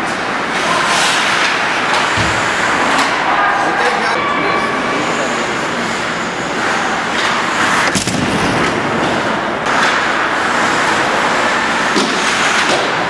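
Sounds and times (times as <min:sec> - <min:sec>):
ice hockey arena noise: 0:00.0 - 0:13.0
sharp impact crack: 0:07.9 - 0:08.7.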